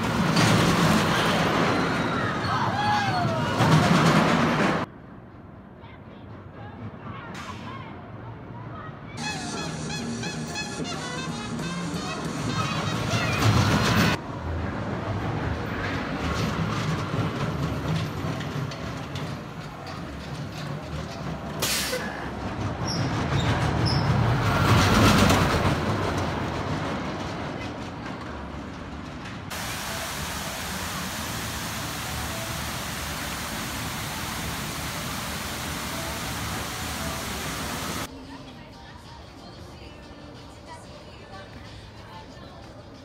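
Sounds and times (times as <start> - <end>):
roller coaster running on track: 0.0 - 5.5, 9.2 - 38.1
fountain water rushing: 29.5 - 38.1.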